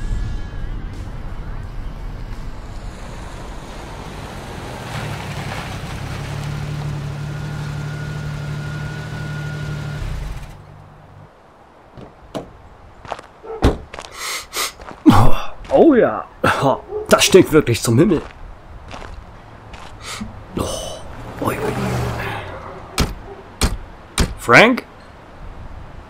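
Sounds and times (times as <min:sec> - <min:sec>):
car engine running: 0:01.9 - 0:11.3, 0:19.6 - 0:24.5
sharp clicks and knock: 0:23.0 - 0:24.5.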